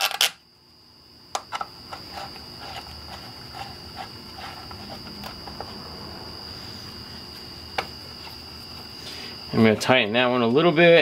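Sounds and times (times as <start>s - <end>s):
high-pitched whine: 0.0s - 11.0s.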